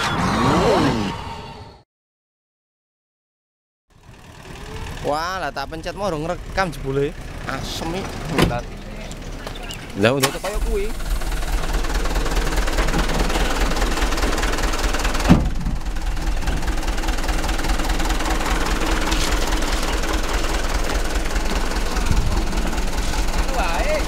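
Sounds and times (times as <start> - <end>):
diesel engine idling: 3.9 - 24.0
sharp thump: 15.2 - 15.8.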